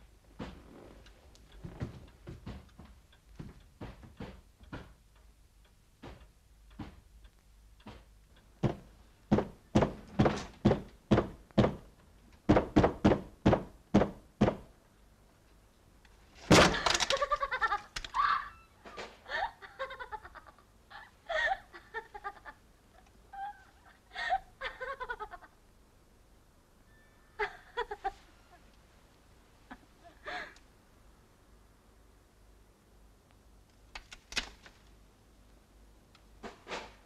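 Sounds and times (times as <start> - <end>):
thuds: 7.9 - 11.9
woman laughing high-pitched: 16.8 - 25.6, 27.4 - 28.7.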